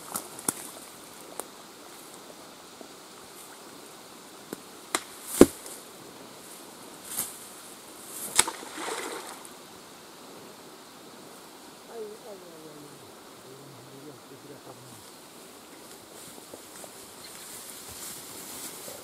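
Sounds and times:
splashing rustle in water: 8.2 - 9.5.

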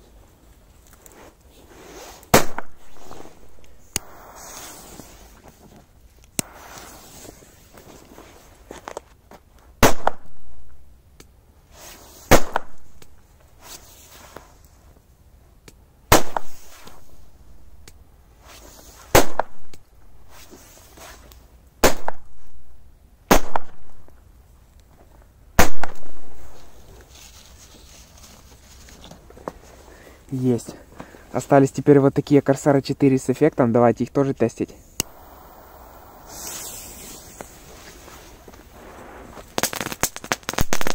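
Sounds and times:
firecrackers exploding: 1.8 - 5.4, 6.4 - 8.2, 9.8 - 10.7, 12.2 - 13.0, 16.1 - 17.2, 19.1 - 19.7, 21.8 - 22.6, 23.3 - 24.1, 25.6 - 26.8, 35.0 - 40.9.

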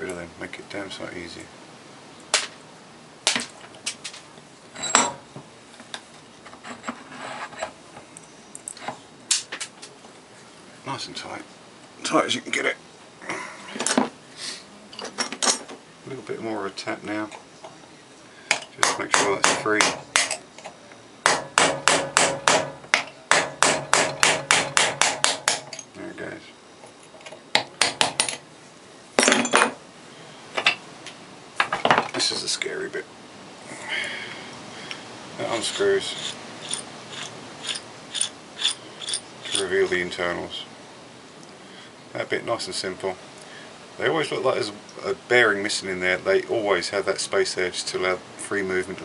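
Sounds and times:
hammer tapping metal punch: 18.5 - 20.4, 21.2 - 25.9.

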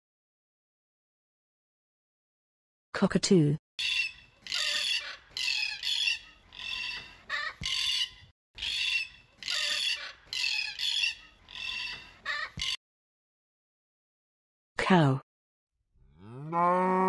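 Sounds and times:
cockatoo screeching: 3.8 - 12.8.

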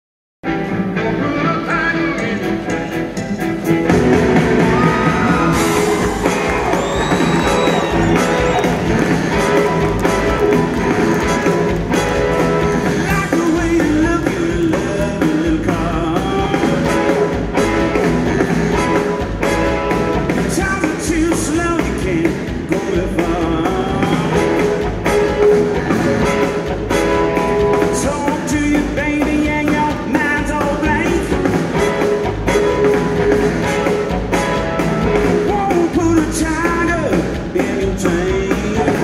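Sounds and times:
blues-rock band playing: 0.4 - 39.0
man singing: 0.9 - 3.6, 12.8 - 17.4, 20.4 - 24.8, 27.8 - 31.5, 35.2 - 39.0.

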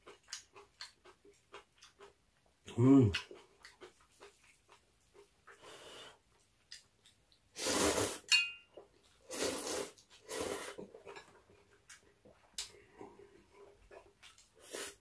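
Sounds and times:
person slurping noodles: 7.6 - 8.3, 9.2 - 10.9, 14.6 - 15.0
chopsticks clinking on pan: 8.3 - 8.7.

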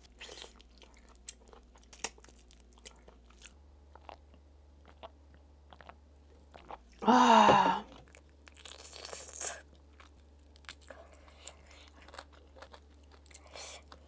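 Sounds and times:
chewing crunches: 0.0 - 7.0, 7.8 - 14.0
person sighing aah: 7.0 - 7.9.

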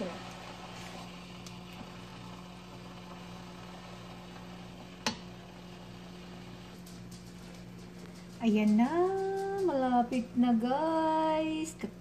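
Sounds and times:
noodles sizzling in a wok: 0.0 - 6.8.

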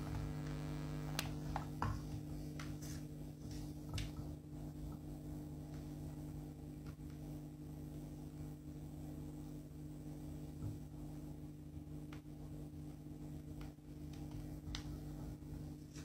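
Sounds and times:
steady low hum: 0.0 - 16.0
faint clicks and taps: 13.5 - 15.0.

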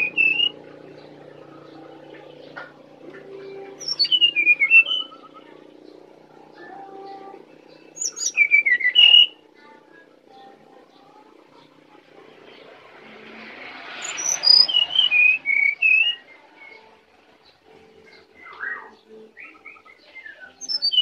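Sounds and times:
bird singing whistled notes: 0.0 - 2.6, 3.5 - 6.0, 6.6 - 9.4, 13.9 - 17.0, 18.0 - 21.0.

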